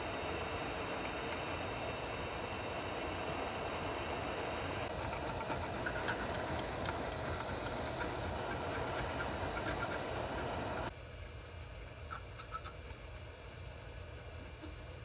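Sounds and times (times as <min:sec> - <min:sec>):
screwdriver scraping glue: 0:04.9 - 0:10.8.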